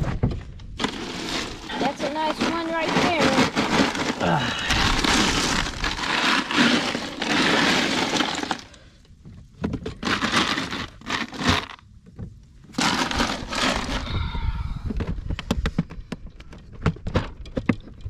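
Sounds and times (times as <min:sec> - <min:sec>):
ice cubes clattering in a cooler: 0:00.8 - 0:08.9, 0:09.6 - 0:11.9, 0:12.7 - 0:14.3
plastic bottles shifting: 0:00.8 - 0:09.0, 0:09.6 - 0:11.8, 0:12.7 - 0:15.2.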